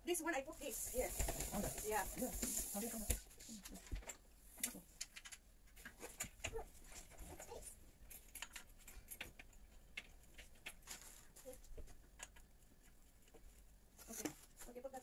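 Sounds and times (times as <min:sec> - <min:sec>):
small parts clicking and tapping: 0:03.8 - 0:13.6.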